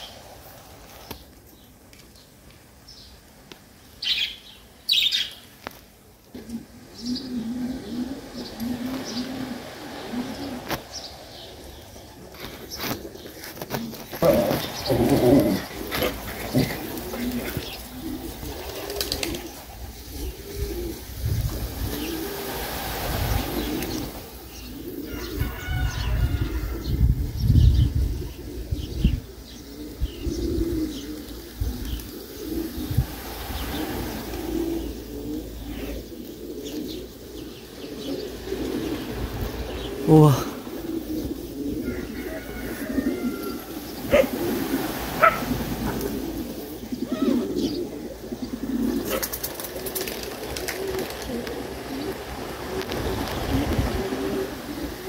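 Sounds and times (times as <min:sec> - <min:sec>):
pigeons cooing: 0:04.0 - 0:55.0
small birds chirping: 0:10.3 - 0:22.4, 0:23.2 - 0:41.8, 0:43.5 - 0:52.2.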